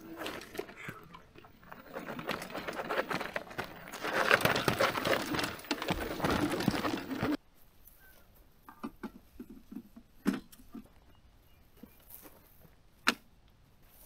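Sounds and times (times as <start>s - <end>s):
footsteps crunching on gravel: 0.0s - 7.4s
dry grass rustling: 0.0s - 8.6s.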